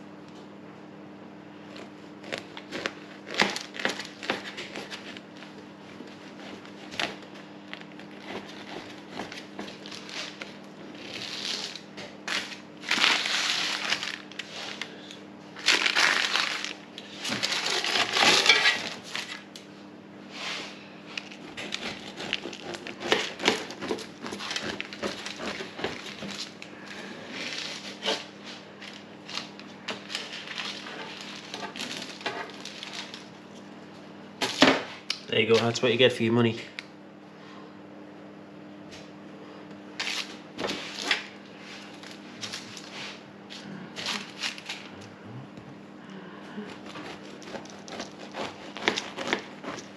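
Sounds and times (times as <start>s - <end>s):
knife sawing through crunchy cake: 1.6s - 14.8s, 17.0s - 19.4s, 20.3s - 33.3s, 46.6s - 49.9s.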